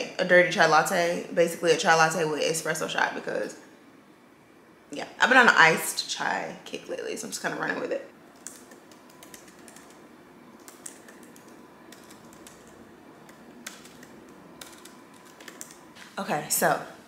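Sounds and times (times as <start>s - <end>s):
fingers typing on laptop keyboard: 8.3s - 15.9s.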